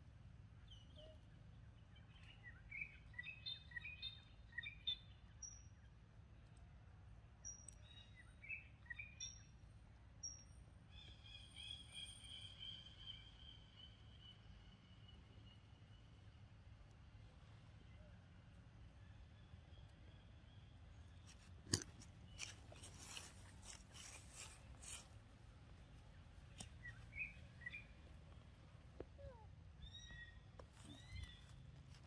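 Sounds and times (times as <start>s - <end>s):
birds chirping: 26.0s - 32.0s.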